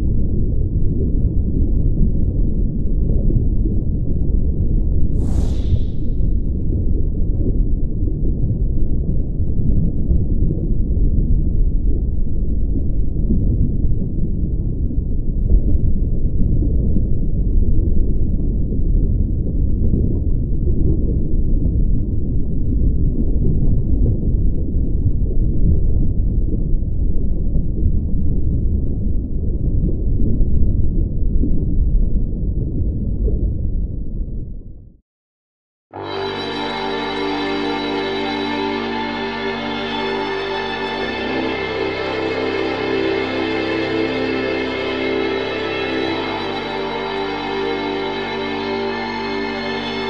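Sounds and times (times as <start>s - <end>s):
low rumbling drone: 0.0s - 20.5s, 36.0s - 50.0s.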